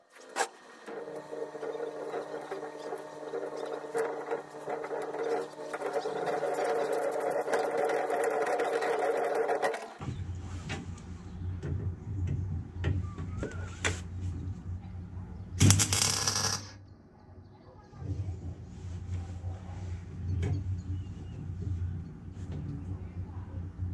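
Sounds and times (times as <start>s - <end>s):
welding arc crackling: 15.6s - 16.8s.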